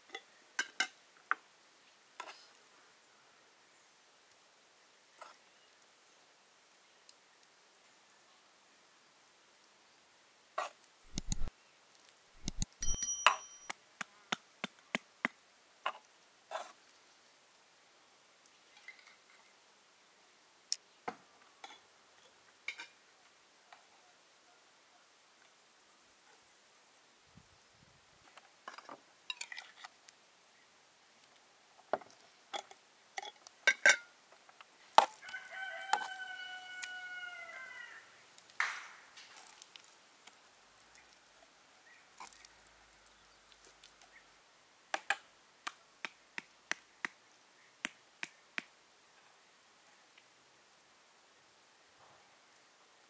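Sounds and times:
sharp clicks and knocks: 11.1 - 11.5, 12.4 - 13.8
ringing clink: 12.5 - 13.7
rooster crowing: 35.2 - 38.2.

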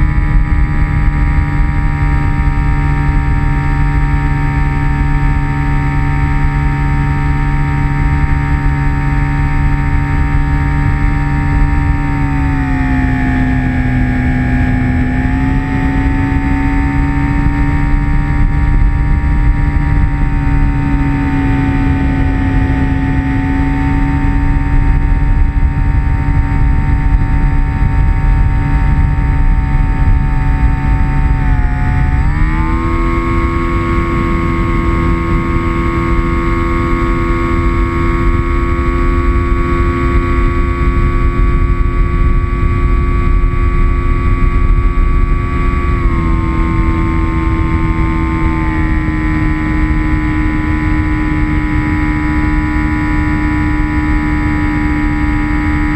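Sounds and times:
model airplane motor whine: 0.0 - 55.9.

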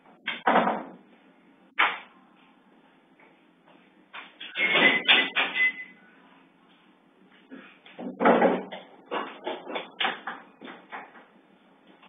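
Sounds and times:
clattering knocks and bangs: 4.2 - 5.8, 8.0 - 11.3.

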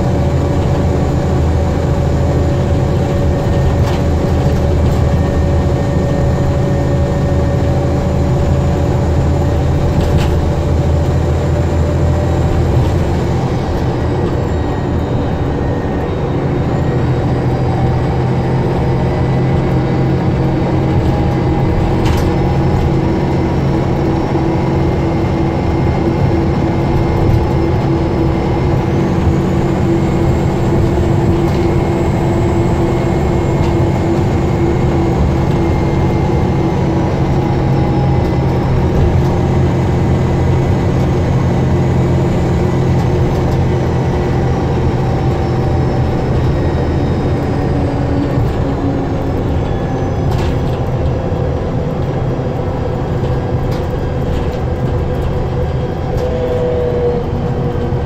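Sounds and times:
bus engine drone: 0.0 - 58.0.

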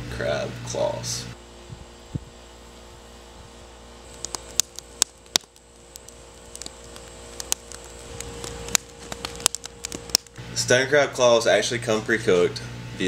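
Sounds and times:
wood fire crackling and popping: 4.1 - 10.4.

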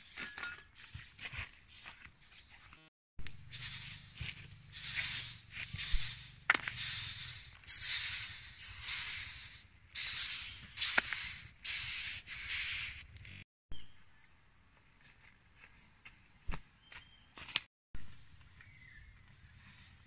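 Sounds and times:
beetles scratchy rustling: 3.5 - 13.0.

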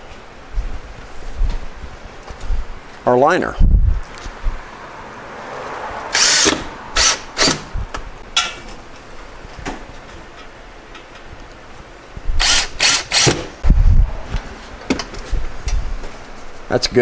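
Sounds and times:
cordless drill driving screws: 6.1 - 7.6, 12.4 - 13.5.

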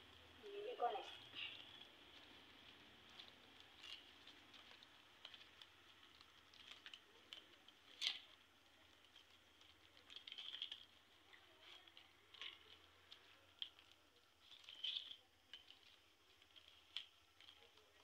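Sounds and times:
dry leaves crackling while woven: 0.0 - 18.0.

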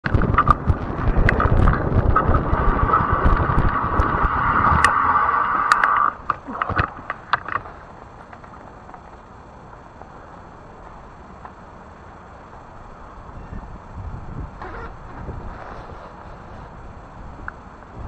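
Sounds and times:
wind buffeting microphone: 0.0 - 6.4, 13.2 - 18.0
electric bike hum: 0.0 - 18.0.

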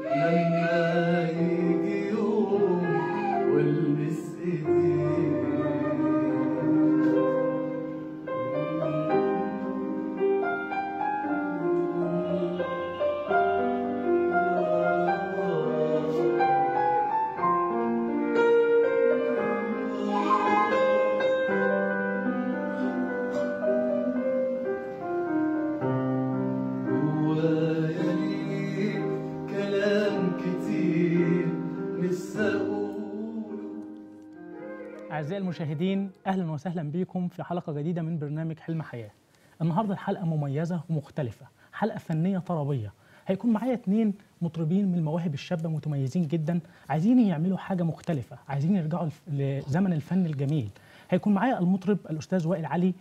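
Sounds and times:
man singing: 0.0 - 10.0, 11.5 - 13.7, 14.3 - 17.1, 19.1 - 21.8, 26.8 - 33.9, 35.1 - 36.8
instrumental backing music: 0.0 - 36.3.

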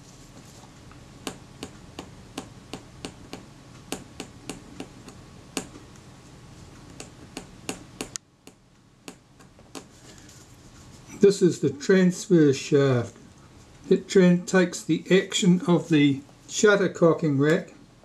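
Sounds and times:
background hum: 0.0 - 18.0.

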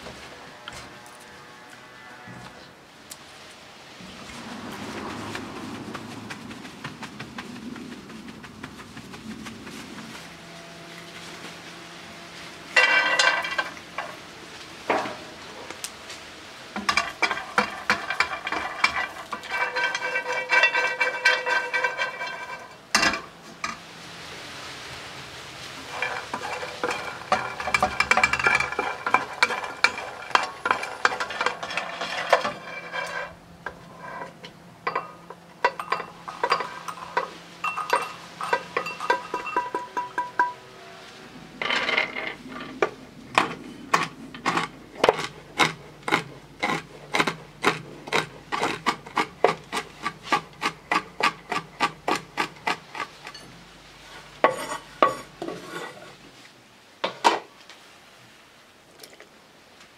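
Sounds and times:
almonds clattering in metal pan: 12.8 - 14.2, 16.8 - 23.8, 25.8 - 33.4, 34.8 - 40.6, 41.6 - 42.7
pan ringing: 34.9 - 41.9
almonds clinking into glass bowl: 35.7 - 40.6.

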